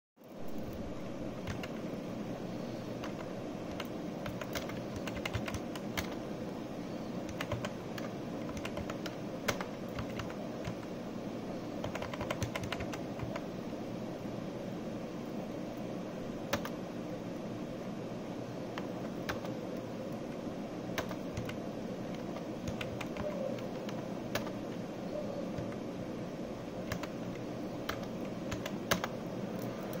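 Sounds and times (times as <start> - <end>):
steady low hum: 0.2 - 30.0
computer mouse clicking: 1.4 - 1.8, 3.0 - 6.2, 7.2 - 10.9, 11.8 - 13.5, 16.5 - 16.8, 18.7 - 20.4, 21.0 - 24.8, 25.5 - 25.8, 26.8 - 30.0.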